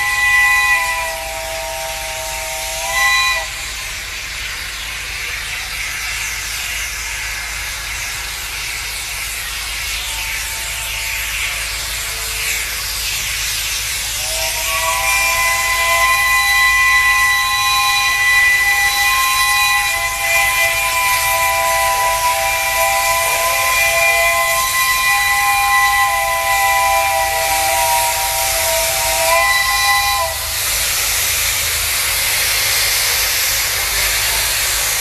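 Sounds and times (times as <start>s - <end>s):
steam locomotive chime whistle: 0.0s - 8.7s, 9.6s - 13.3s, 14.0s - 31.6s
steam hissing: 0.0s - 35.0s.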